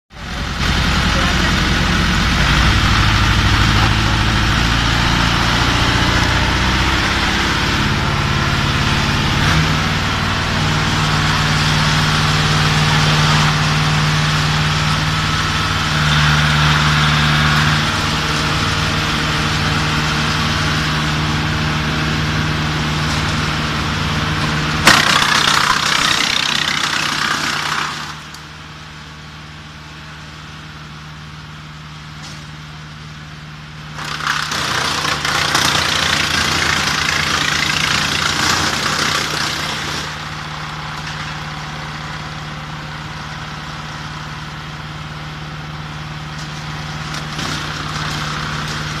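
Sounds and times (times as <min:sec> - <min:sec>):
wood chipper engine running: 0:00.1 - 0:49.0
branch cracking in chipper: 0:24.8 - 0:28.4, 0:34.0 - 0:40.3, 0:46.3 - 0:49.0.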